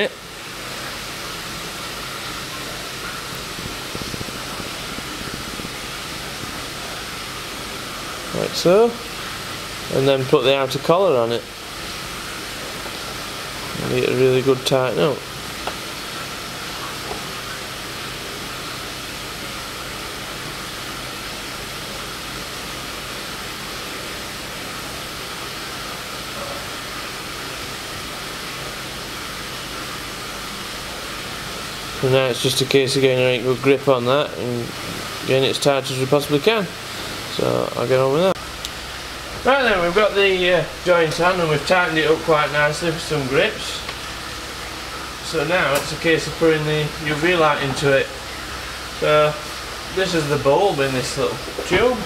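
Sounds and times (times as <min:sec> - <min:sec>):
faint low pump hum: 0:00.0 - 0:52.0
rushing water: 0:00.0 - 0:52.0
steady rushing noise: 0:02.9 - 0:08.8.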